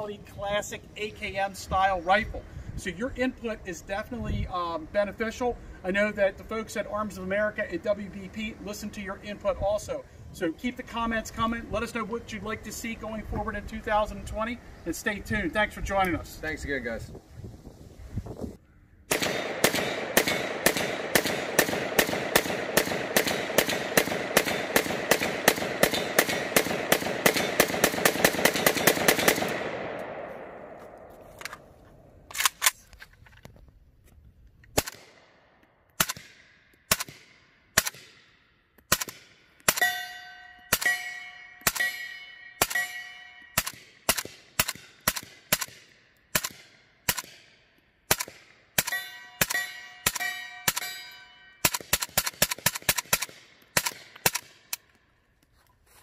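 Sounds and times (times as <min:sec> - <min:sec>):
rifle shots echoing: 0:19.1 - 0:32.8, 0:34.8 - 0:39.9, 0:40.7 - 0:51.0, 0:51.6 - 0:54.7
steel target ringing: 0:39.7 - 0:43.6, 0:48.8 - 0:51.6.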